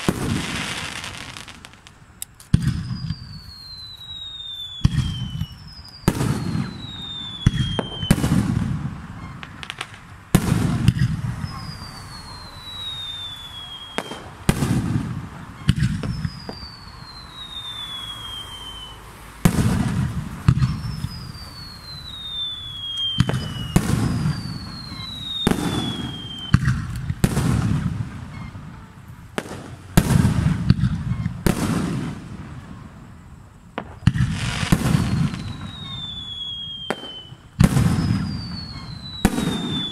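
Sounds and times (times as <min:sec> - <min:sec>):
firework bangs with rumble: 0:00.0 - 0:00.7, 0:02.5 - 0:03.4, 0:04.8 - 0:12.2, 0:14.0 - 0:16.8, 0:19.4 - 0:21.8, 0:23.0 - 0:32.8, 0:33.7 - 0:36.0, 0:36.9 - 0:39.9
firework whistles sliding down: 0:00.0 - 0:32.9, 0:33.8 - 0:39.9.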